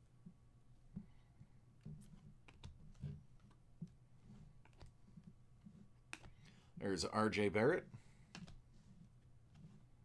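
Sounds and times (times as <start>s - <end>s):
cards being flipped through: 2.0s - 3.6s, 4.6s - 5.0s.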